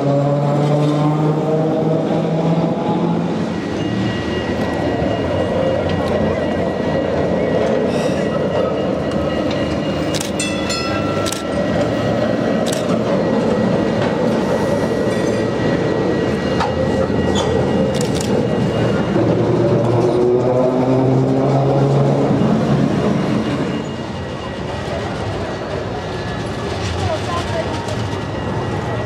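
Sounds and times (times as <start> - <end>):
tram motor whine: 0.0 - 29.0
tram wheels rumbling on rails: 0.0 - 29.0.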